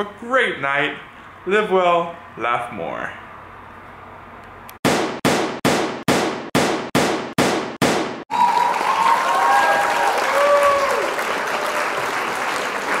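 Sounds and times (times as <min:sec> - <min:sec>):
sharp strikes: 0:04.8 - 0:08.2
crowd applauding and cheering: 0:08.3 - 0:13.0.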